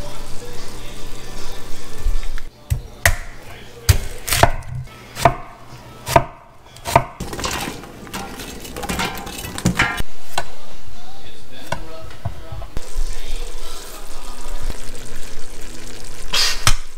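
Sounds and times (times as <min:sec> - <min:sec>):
knife chopping on wooden board: 0:03.9 - 0:05.5, 0:06.1 - 0:07.2.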